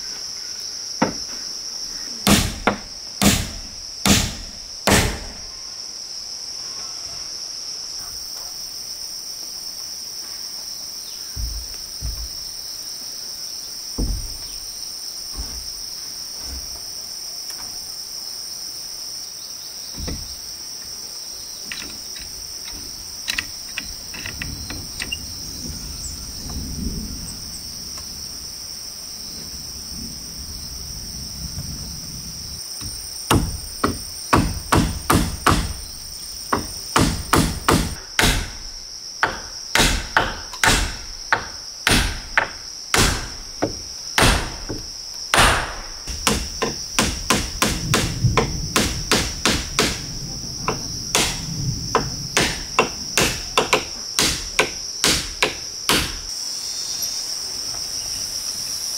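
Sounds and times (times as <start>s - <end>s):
insect chorus: 0.0s - 58.9s
scattered knocks: 1.0s - 1.3s, 11.4s - 12.5s, 14.0s - 14.6s, 19.9s - 20.4s, 32.8s - 35.8s, 36.5s - 38.6s, 39.2s - 50.0s, 50.6s - 56.2s.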